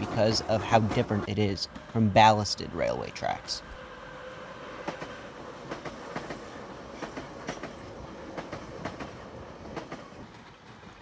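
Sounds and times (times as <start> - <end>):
train running whine: 0.0 - 11.0
train wheels clicking over rails: 4.8 - 11.0.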